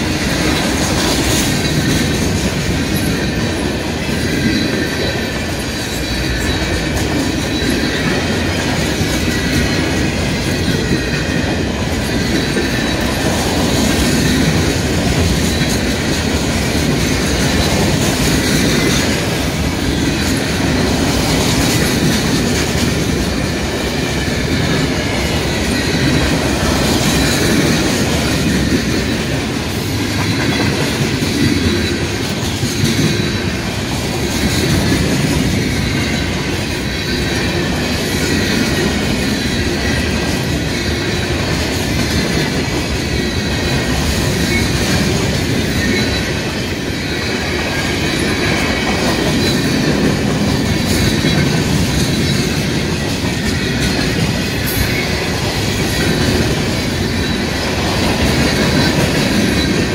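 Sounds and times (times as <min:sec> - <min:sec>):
train wheels rumbling and clattering: 0:00.0 - 0:59.9.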